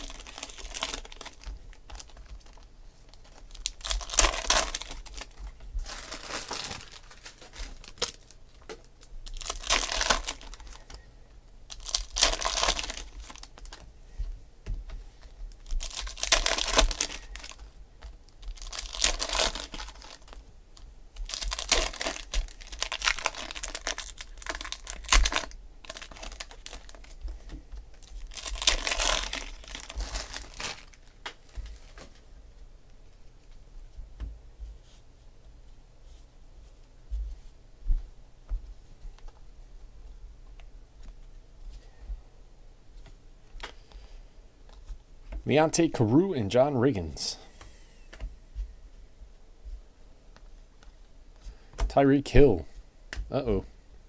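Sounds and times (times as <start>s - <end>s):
foil wrappers crinkling and tearing: 0.0s - 11.0s, 11.7s - 13.9s, 15.2s - 32.2s.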